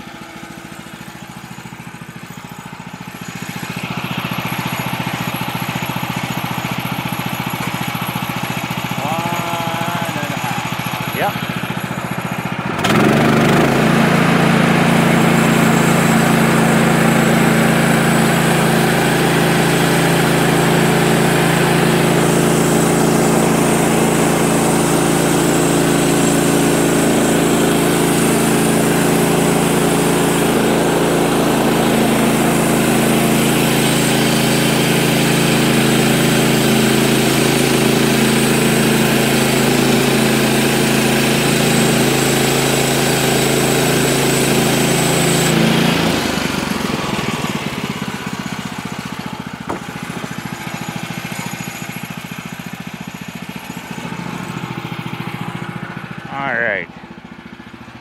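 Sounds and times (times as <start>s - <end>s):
sawmill engine running: 0.0s - 58.0s
band blade cutting log: 49.6s - 50.4s.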